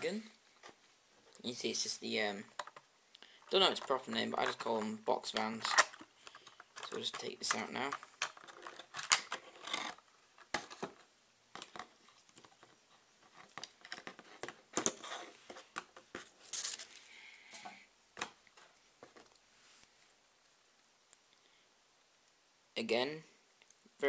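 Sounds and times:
plastic packaging crinkling: 16.4s - 17.1s.

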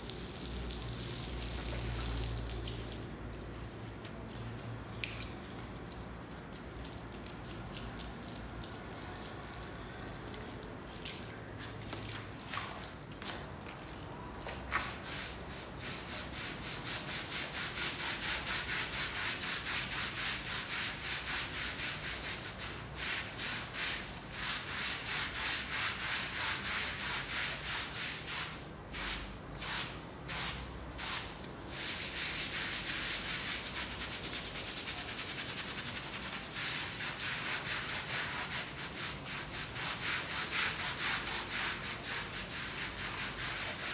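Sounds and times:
brush scrubbing wet soapy rug: 14.5s - 43.9s.

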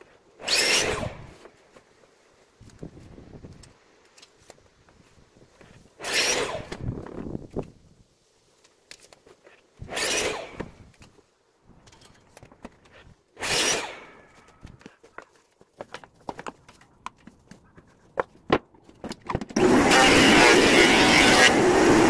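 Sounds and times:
handling clicks and knocks: 14.3s - 19.6s
power tool on wood: 19.6s - 22.0s.

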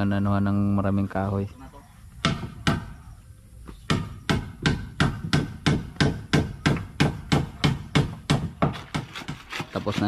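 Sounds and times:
hammer striking wood: 2.2s - 3.0s, 3.9s - 10.0s.

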